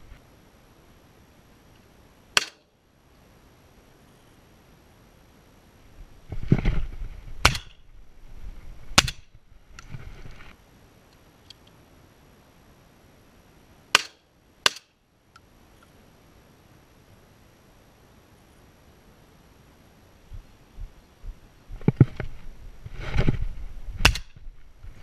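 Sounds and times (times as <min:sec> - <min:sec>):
shotgun shots: 0:07.4 - 0:07.8.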